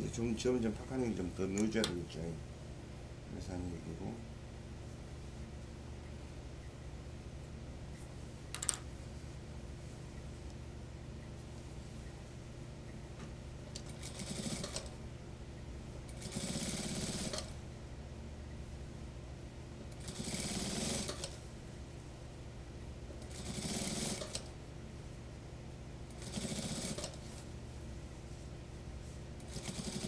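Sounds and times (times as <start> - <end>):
sewing machine low hum: 9.2 - 30.0
sewing machine stitching: 13.9 - 14.9, 16.2 - 17.5, 20.0 - 21.4, 23.3 - 24.5, 26.2 - 27.2, 29.5 - 30.0.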